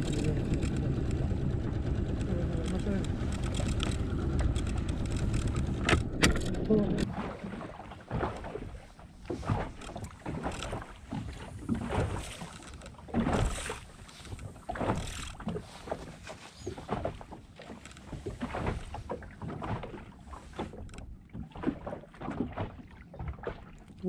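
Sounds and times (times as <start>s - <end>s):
water lapping against boat hull: 0.0s - 24.0s.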